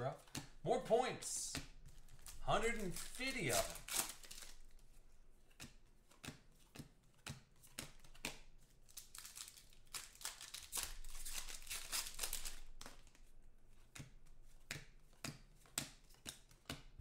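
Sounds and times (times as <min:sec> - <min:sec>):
foil wrappers tearing and crumpling: 0:02.2 - 0:04.7, 0:08.9 - 0:13.1.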